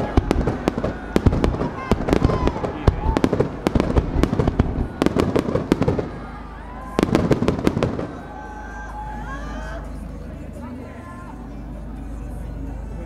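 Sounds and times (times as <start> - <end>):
fireworks bangs and crackles: 0.0 - 8.4.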